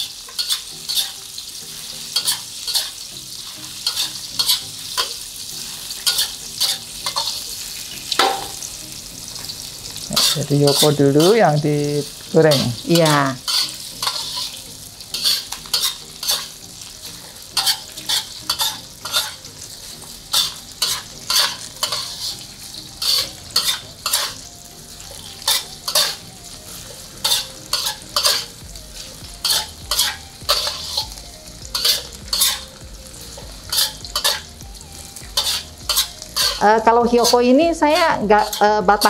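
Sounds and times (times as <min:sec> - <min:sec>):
utensil scraping pan: 0:00.0 - 0:01.2, 0:03.6 - 0:05.2, 0:12.5 - 0:14.6, 0:15.2 - 0:16.5, 0:17.2 - 0:19.5, 0:20.3 - 0:22.4, 0:23.0 - 0:24.4, 0:25.4 - 0:26.2, 0:27.2 - 0:28.6, 0:29.4 - 0:31.2, 0:31.8 - 0:32.7, 0:33.7 - 0:34.5, 0:35.4 - 0:36.6
mushrooms sizzling in oil: 0:00.0 - 0:39.0.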